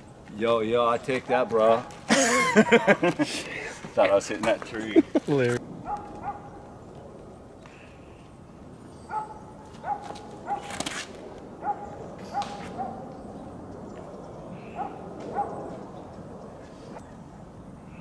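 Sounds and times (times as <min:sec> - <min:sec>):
dog barking: 0:05.8 - 0:06.6, 0:09.1 - 0:10.7, 0:11.6 - 0:13.1, 0:14.7 - 0:15.7.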